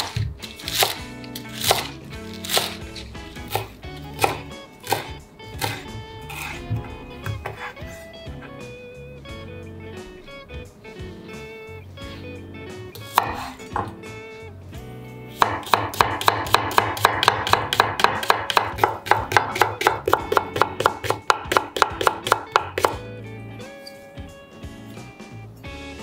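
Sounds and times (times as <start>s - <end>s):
knife chopping on cutting board: 0.0s - 2.8s, 3.4s - 7.8s, 13.0s - 14.0s, 15.4s - 23.0s.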